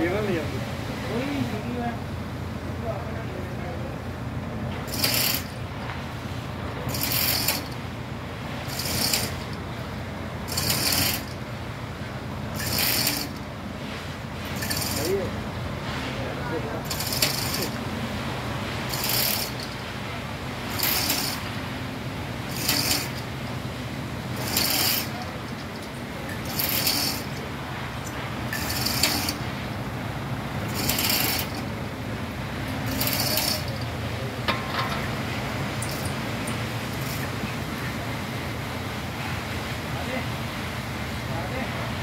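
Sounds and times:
ratchet clicking and chain rattle: 4.9 - 5.6, 6.9 - 7.8, 8.6 - 9.6, 10.4 - 11.4, 12.6 - 13.5, 14.5 - 15.3, 16.8 - 17.8, 18.9 - 19.8, 20.7 - 21.5, 22.5 - 23.3, 24.3 - 29.8, 30.7 - 31.7, 32.7 - 35.1, 35.8 - 37.4.

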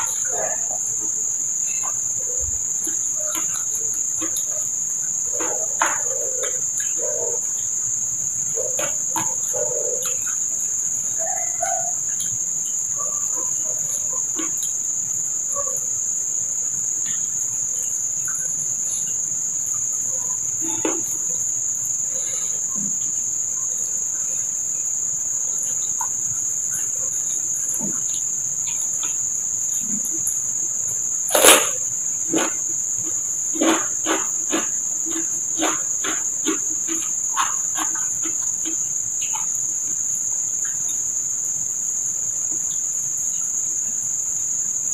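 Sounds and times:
insects trilling: 0.0 - 44.9
cucumber crunching being chewed: 31.3 - 39.5.

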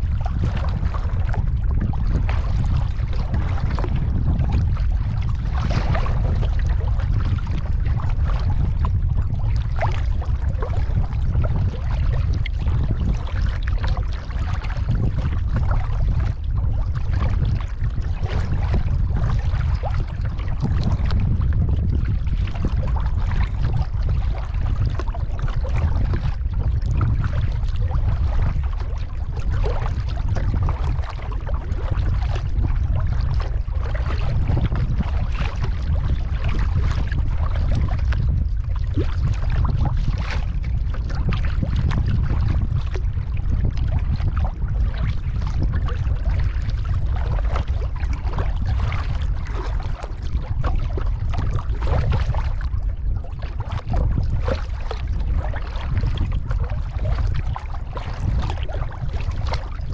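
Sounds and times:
wind rumble on microphone: 0.0 - 59.9
paddle splashing in water: 24.3 - 32.6, 35.0 - 38.2, 47.4 - 52.7, 53.4 - 55.2, 57.2 - 59.8.

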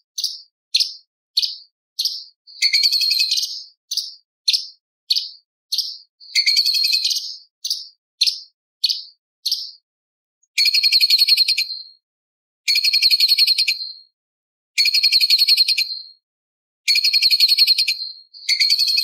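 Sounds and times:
bird chirping and trilling: 0.0 - 9.8, 10.5 - 12.0, 12.7 - 14.1, 14.8 - 16.2, 16.9 - 19.0.

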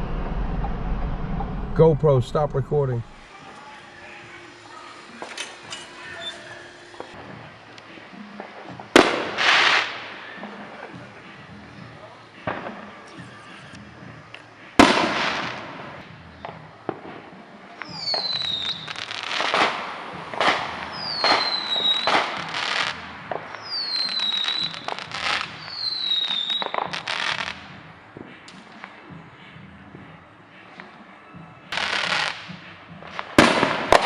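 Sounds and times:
descending firework whistles: 3.3 - 7.2, 17.8 - 27.6
fireworks bangs and crackling: 3.3 - 29.2, 31.7 - 34.0.

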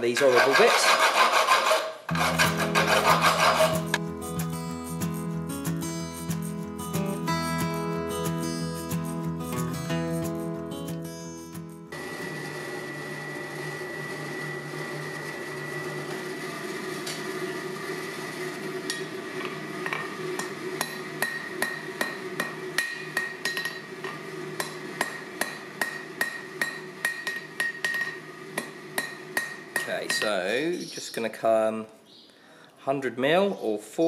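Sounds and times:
hammer striking steel on anvil: 20.0 - 30.3.

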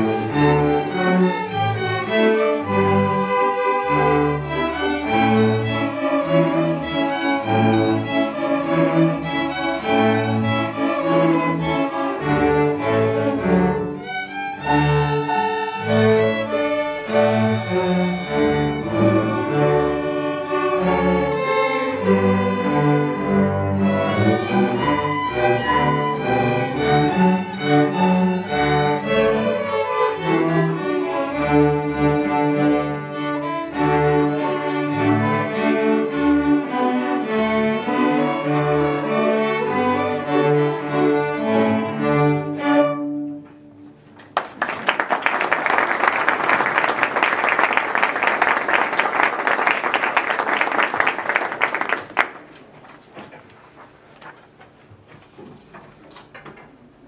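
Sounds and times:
string orchestra playing: 0.0 - 44.2
audience applauding: 44.2 - 52.7.

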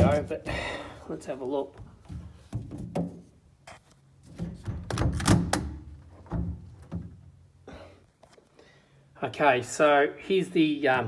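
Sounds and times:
knocks and thunks from handling: 0.0 - 0.6, 1.8 - 3.3, 4.2 - 7.2.

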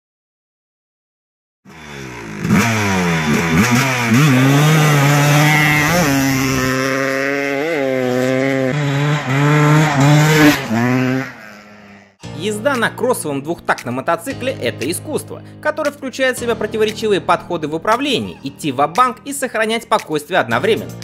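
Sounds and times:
motorbike engine revving: 1.7 - 12.3.

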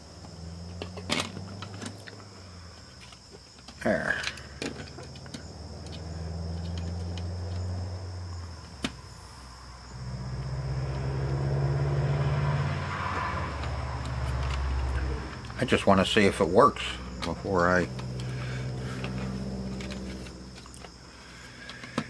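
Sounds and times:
low droning hum: 9.2 - 20.8.

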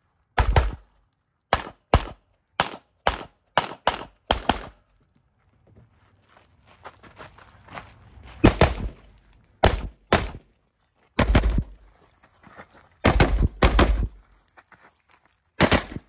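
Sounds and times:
sharp gunshots: 0.4 - 0.8, 1.5 - 4.8, 8.4 - 9.0, 9.6 - 10.4, 11.2 - 11.7, 13.0 - 14.1, 15.6 - 16.0
movement rustle: 5.4 - 9.6, 11.8 - 13.0, 14.2 - 15.6.

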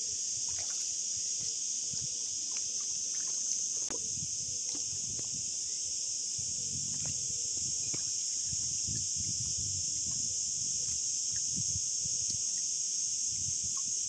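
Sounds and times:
cicadas buzzing: 0.0 - 14.0.

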